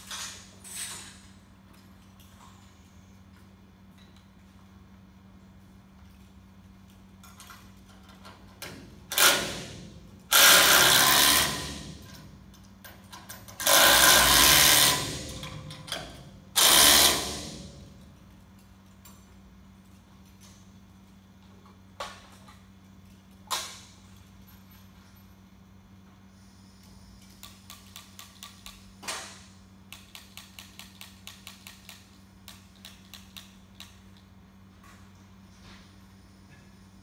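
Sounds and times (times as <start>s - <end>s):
power tool driving bolts: 8.6s - 12.2s, 13.2s - 18.0s.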